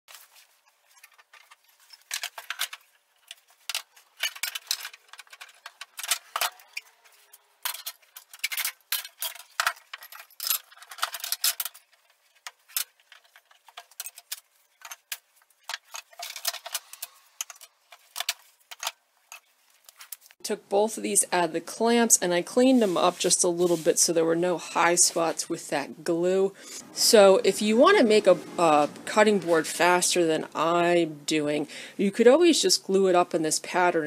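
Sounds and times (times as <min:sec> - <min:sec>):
metal clamps clinking and rattling: 0:00.9 - 0:20.3.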